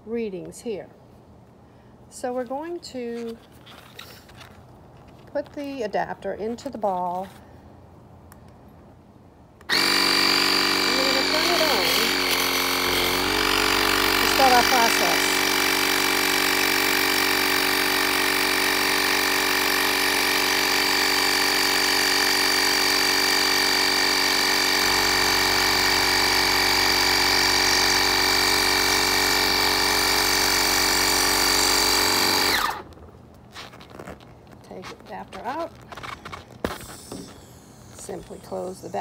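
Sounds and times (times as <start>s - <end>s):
air compressor humming and whining: 9.7s - 32.9s, 33.8s - 39.0s.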